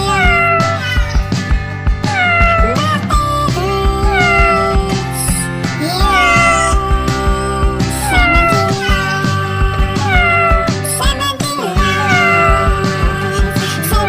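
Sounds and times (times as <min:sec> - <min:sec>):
steady drum beat: 0:00.0 - 0:11.2, 0:11.8 - 0:14.0.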